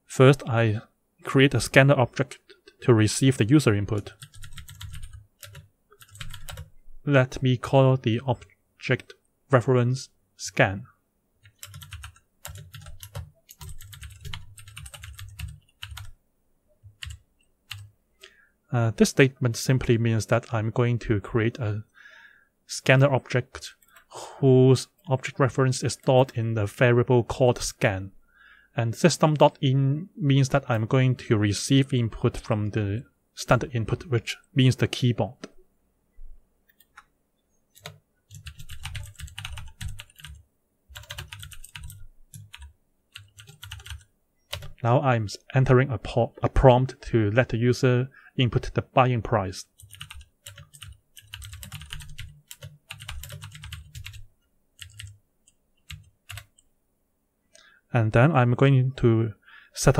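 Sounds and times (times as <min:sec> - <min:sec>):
keyboard typing: 0:04.2 - 0:06.7, 0:11.4 - 0:16.2, 0:16.9 - 0:17.9, 0:37.7 - 0:44.8, 0:49.8 - 0:56.7.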